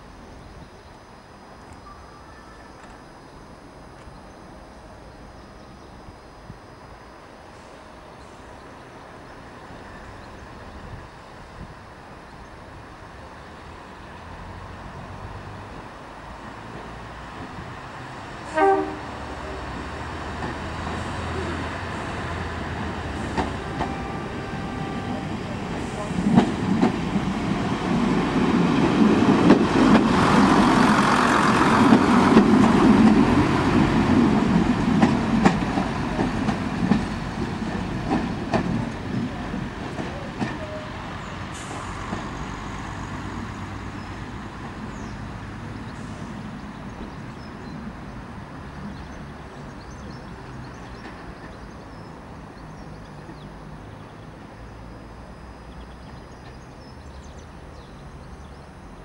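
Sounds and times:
diesel railcar engine: 0.0s - 59.0s
wheels clicking over rail joints: 26.2s - 40.8s.

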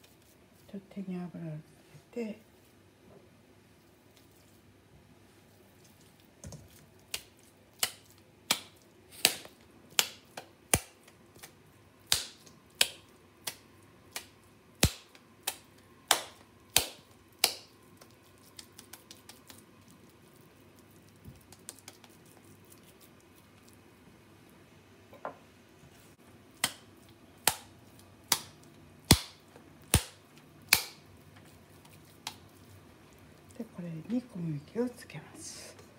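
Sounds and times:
soft pats shaping patty: 5.8s - 23.8s
meat patty slapping between palms: 5.9s - 20.2s, 21.1s - 23.4s, 26.5s - 32.6s.

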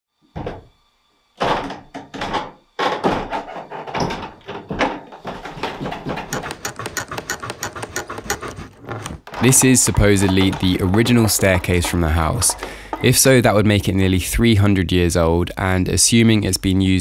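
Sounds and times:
wooden stairs creaking: 1.5s - 14.0s
footsteps on wooden stairs: 4.0s - 14.0s.

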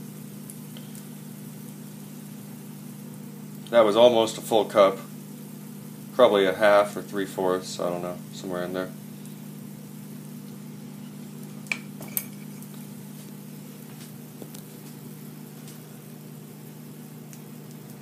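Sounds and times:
steady low hum: 0.0s - 18.0s
metal cup clinking on bowl: 11.7s - 12.6s.

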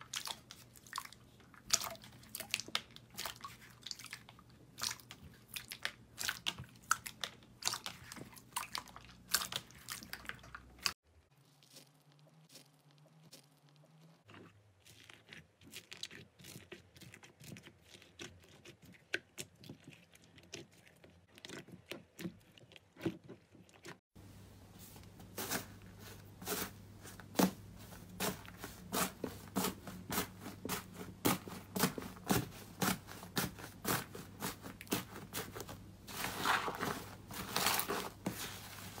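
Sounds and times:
foam beads crunching: 25.3s - 39.0s.

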